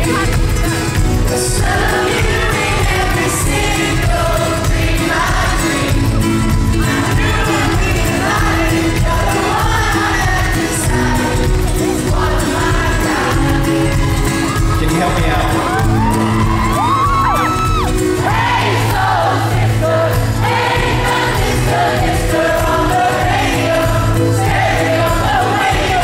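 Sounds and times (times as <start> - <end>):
live pop-rock band: 0.0 - 26.0
strummed ukulele: 0.0 - 26.0
man singing: 6.8 - 11.0.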